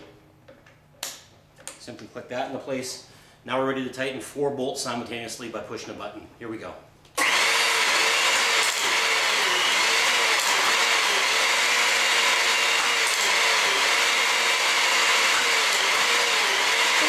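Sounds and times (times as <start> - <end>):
hydraulic pump running: 7.2 - 17.0.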